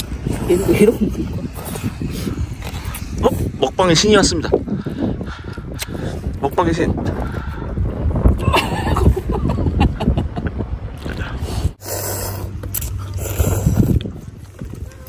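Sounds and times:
boy slurping noodles: 0.0s - 3.5s, 11.0s - 15.0s
low rumble: 0.0s - 15.0s
wind on microphone: 0.0s - 15.0s.

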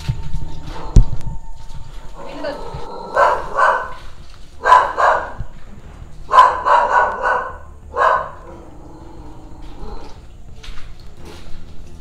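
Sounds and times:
dog barking: 2.2s - 5.6s, 6.3s - 8.7s.

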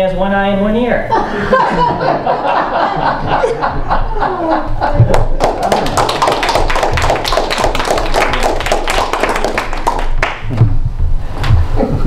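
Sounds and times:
people applauding: 4.3s - 10.6s.

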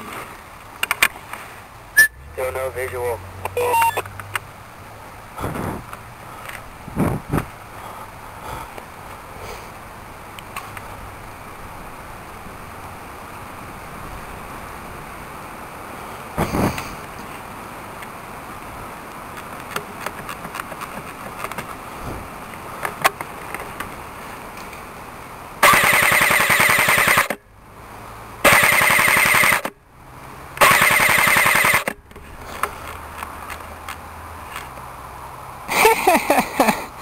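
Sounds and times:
airsoft gun full-auto bursts: 25.6s - 27.4s, 28.5s - 29.7s, 30.6s - 31.9s.

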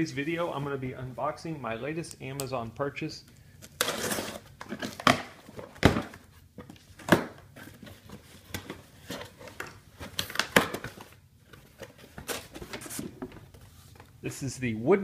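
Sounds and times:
packing tape tearing: 3.6s - 6.1s
cardboard flaps crinkling and scraping: 3.8s - 14.1s.

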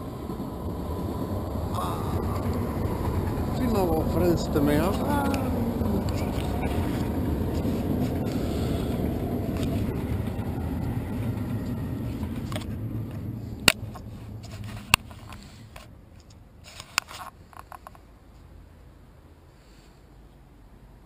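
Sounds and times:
camera handling rumble: 13.6s - 18.0s.

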